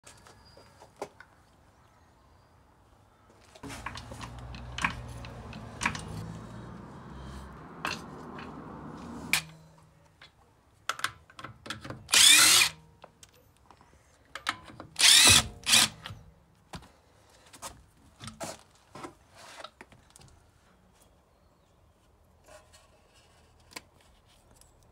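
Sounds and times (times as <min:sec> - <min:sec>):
impact wrench hammering: 0:03.6 - 0:07.2, 0:15.0 - 0:16.0.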